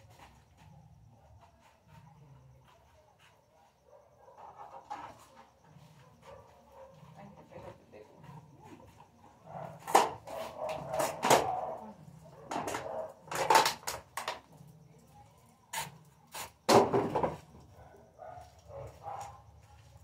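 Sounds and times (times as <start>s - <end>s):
sharp knocks and clatters: 16.7s - 17.4s.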